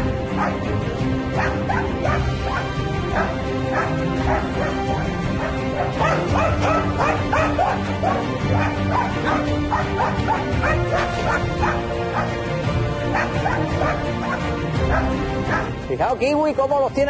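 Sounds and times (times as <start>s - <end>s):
background music: 0.0s - 17.0s.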